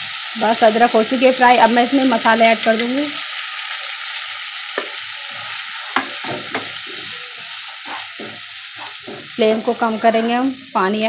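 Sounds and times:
spices sizzling in hot oil: 0:00.0 - 0:11.0
wooden spatula knocking pan: 0:04.8 - 0:05.0, 0:05.9 - 0:09.6.

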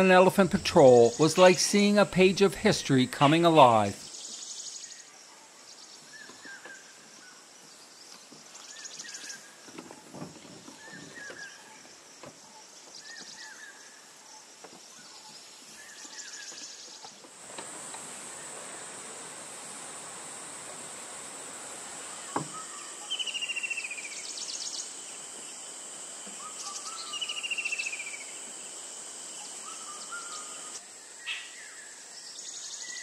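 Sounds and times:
high insect drone: 0:00.0 - 0:33.0
bird calling: 0:21.5 - 0:31.6.

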